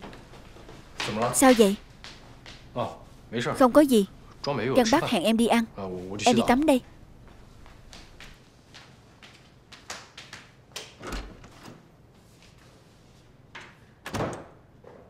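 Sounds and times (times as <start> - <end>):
footsteps walking: 0.0 - 3.3, 6.4 - 10.3.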